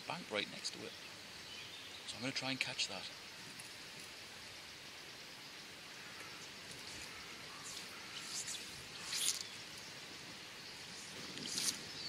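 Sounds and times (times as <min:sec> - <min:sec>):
river water hissing: 0:00.0 - 0:12.0
fly line swishing: 0:06.7 - 0:09.8, 0:10.8 - 0:12.0.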